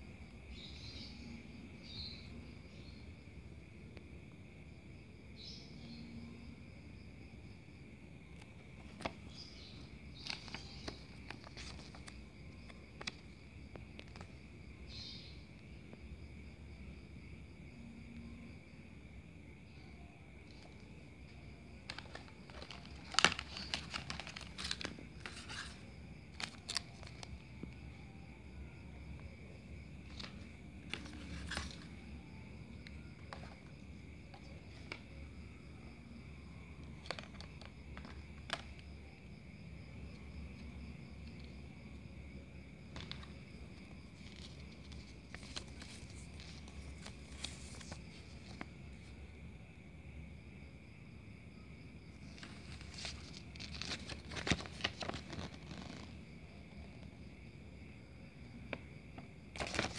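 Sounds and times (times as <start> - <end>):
cricket chirring: 0.0 - 59.9
packaging rustling and crinkling: 10.2 - 13.2, 21.8 - 27.4, 43.0 - 48.7, 52.4 - 56.2, 59.5 - 59.9.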